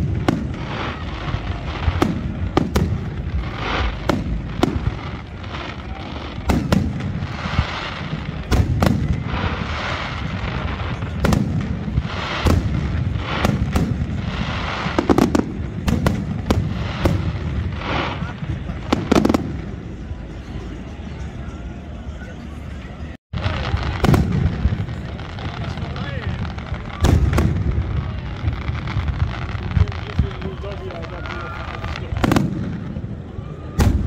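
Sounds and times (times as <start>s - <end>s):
crackling firework stars: 0.0s - 34.0s.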